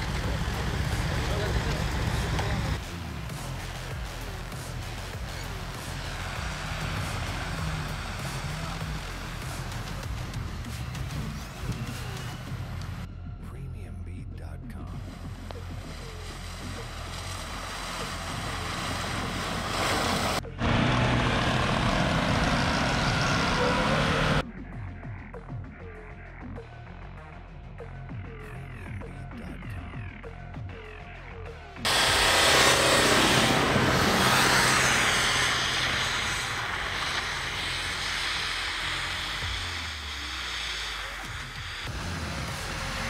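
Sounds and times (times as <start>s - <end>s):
tyres throwing snow: 0.0s - 13.0s, 15.0s - 24.4s, 31.9s - 43.0s
truck engine revving hard: 0.0s - 13.1s, 15.0s - 24.4s, 31.8s - 43.0s
pickup engine under load: 16.1s - 24.4s.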